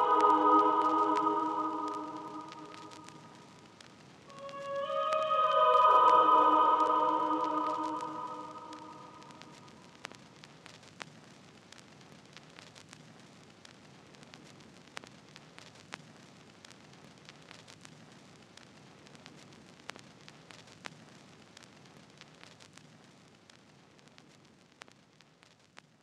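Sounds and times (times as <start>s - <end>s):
faint steady hiss: 0.0s - 26.0s.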